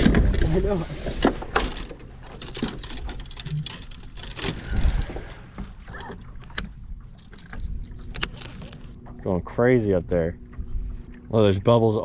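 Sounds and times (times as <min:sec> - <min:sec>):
boat engine rumble: 0:00.0 - 0:12.0
gear clicks and knocks on deck: 0:01.2 - 0:04.6.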